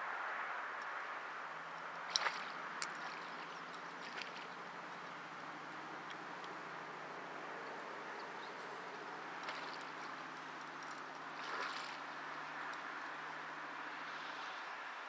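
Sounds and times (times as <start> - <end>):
fish thrashing at water surface: 2.1 - 4.6, 9.4 - 10.1, 11.0 - 12.2.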